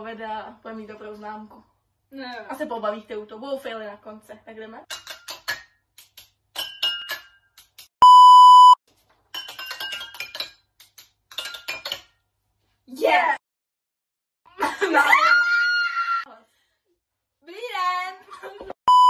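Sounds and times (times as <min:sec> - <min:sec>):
water glasses struck with sticks: 0:06.6 - 0:07.4
electronic beep: 0:08.0 - 0:08.8.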